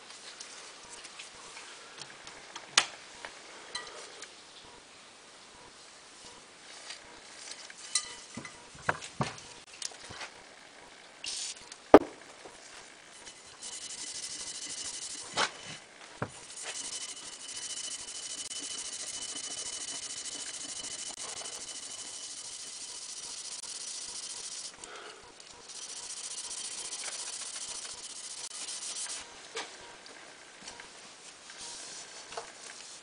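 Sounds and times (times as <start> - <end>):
scouring pad rubbing metal: 13.2 - 15.8, 16.4 - 24.8, 25.7 - 29.2.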